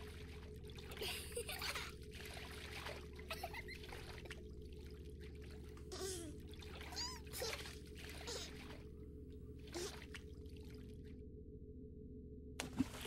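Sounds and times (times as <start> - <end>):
bath water trickling and splashing: 0.0 - 9.0
low steady hum: 0.0 - 13.0.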